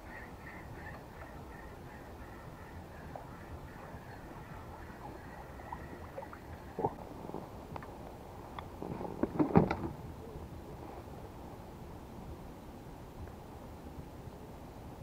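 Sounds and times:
wind hiss on microphone: 0.0 - 15.0.

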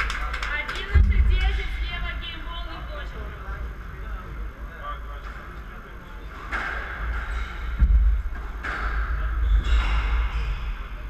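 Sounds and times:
heavy low thud: 6.6 - 10.4.

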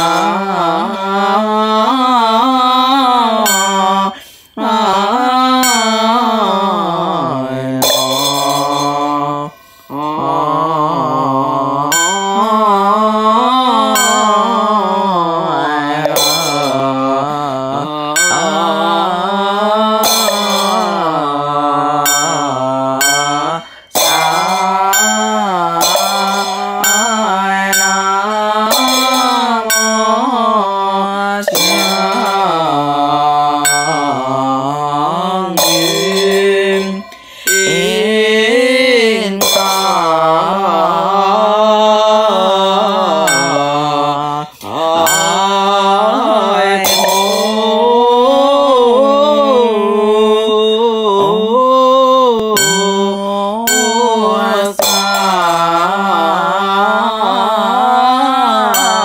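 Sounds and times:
person chanting: 0.0 - 59.0
struck percussion beat: 7.8 - 9.4, 11.9 - 12.8, 15.7 - 19.1, 19.8 - 30.4, 31.4 - 34.7, 35.5 - 38.3, 39.1 - 40.6, 43.1 - 48.3, 52.3 - 56.1.

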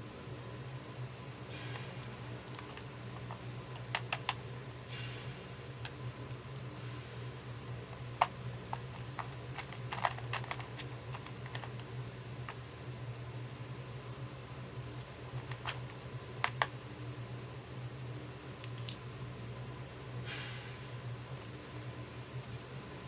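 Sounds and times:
low steady hum: 0.0 - 23.0
plastic toy pieces clicking: 8.2 - 11.8.

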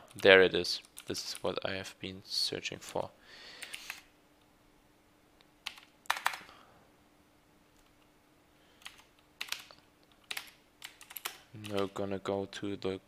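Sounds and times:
computer keyboard keystrokes: 3.6 - 4.1, 5.6 - 6.5, 8.8 - 12.0.

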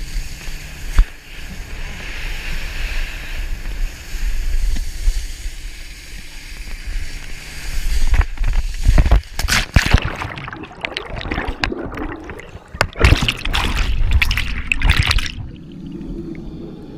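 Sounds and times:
water slaps: 9.3 - 15.6
water rushing past: 9.4 - 16.9
heavy splashing: 9.5 - 16.3
churning bubbling underwater: 9.5 - 16.9.

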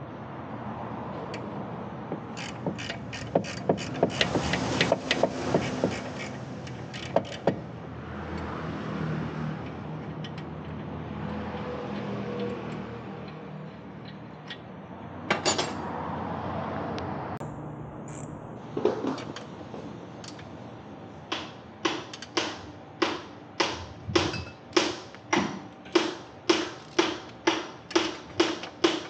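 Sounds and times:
hand tools clicking on metal: 2.3 - 7.6, 21.3 - 25.1, 25.9 - 29.0.

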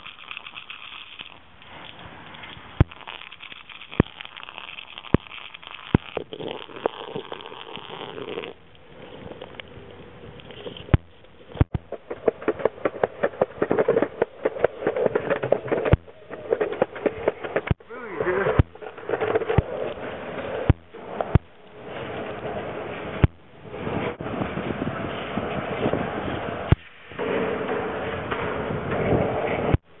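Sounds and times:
longboard wheels rolling on concrete: 0.0 - 30.0
sharp clacks: 10.4 - 21.7, 23.2 - 24.2.

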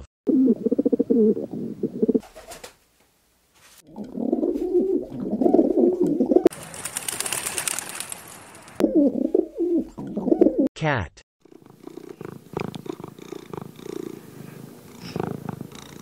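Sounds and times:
pigeons cooing: 0.3 - 2.5, 3.9 - 7.8, 8.7 - 10.7, 11.4 - 16.0
pigeon wings flapping: 2.2 - 2.8, 6.5 - 8.8.

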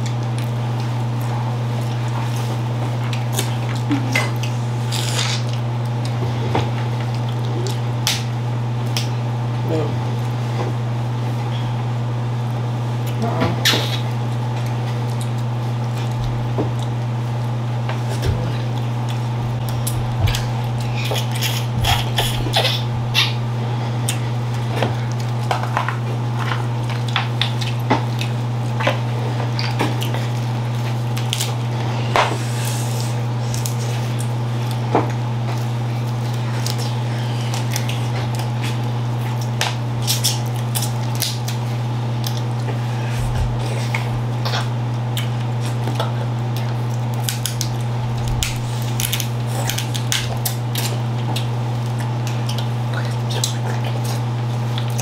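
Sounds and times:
low hum: 15.9 - 25.4, 42.5 - 51.4
crab shells cracking: 36.2 - 41.6, 44.4 - 53.6.

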